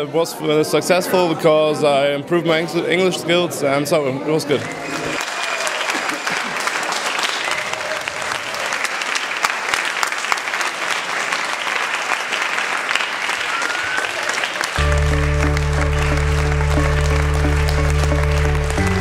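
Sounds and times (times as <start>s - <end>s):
audience applause: 4.7s - 19.0s
music with low sustained notes: 14.8s - 19.0s.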